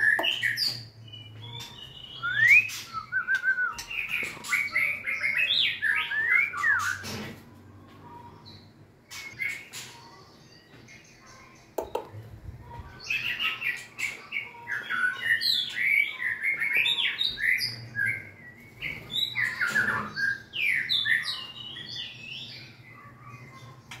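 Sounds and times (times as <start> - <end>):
bird singing whistled phrases: 1.4 - 7.0.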